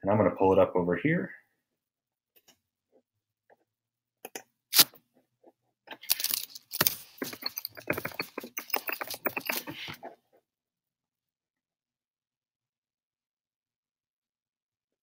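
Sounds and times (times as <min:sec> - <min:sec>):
small hard objects clattering: 0:05.9 - 0:10.1.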